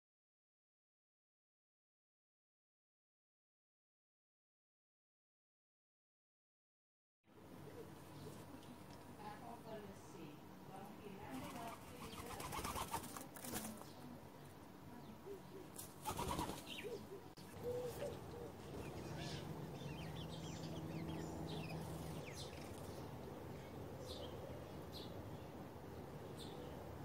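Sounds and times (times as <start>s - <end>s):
small birds chirping faintly: 7.3s - 27.0s
dove wings flapping: 11.3s - 13.9s, 15.8s - 16.8s.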